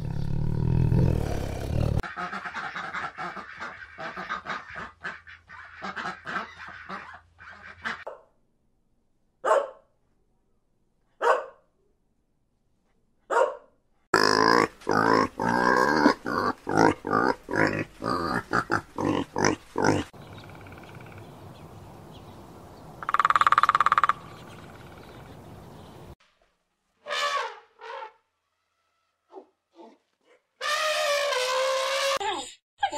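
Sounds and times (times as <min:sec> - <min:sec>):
pigs grunting: 0:00.0 - 0:02.1, 0:14.1 - 0:20.2
ducks quacking: 0:02.0 - 0:08.1
elephant trumpeting: 0:30.6 - 0:32.2.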